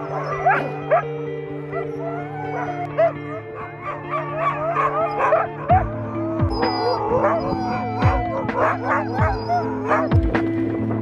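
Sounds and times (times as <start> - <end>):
dogs barking and howling: 0.0 - 10.6
background music with beat: 5.5 - 11.0.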